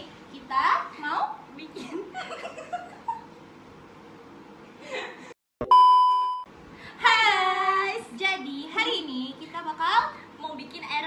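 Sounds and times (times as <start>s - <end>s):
electronic beep: 5.6s - 6.5s.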